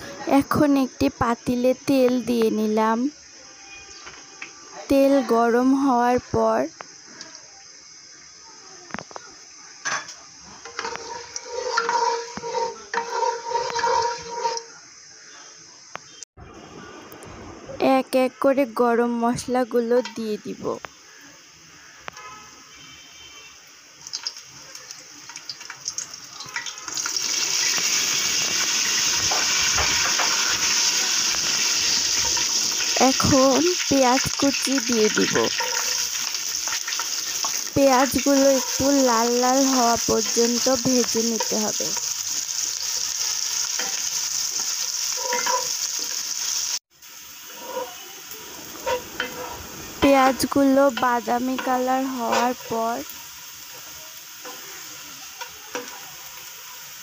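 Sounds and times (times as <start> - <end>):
spices sizzling in hot oil: 0.0 - 16.3, 17.8 - 57.0
spatula scraping pot: 10.6 - 14.8, 35.1 - 39.0, 45.1 - 45.8, 47.5 - 48.0, 48.8 - 50.2.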